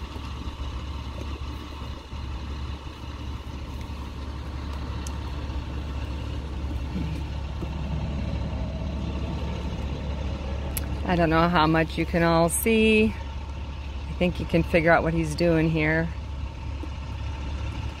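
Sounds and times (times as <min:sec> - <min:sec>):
engine idling hum: 0:00.0 - 0:18.0.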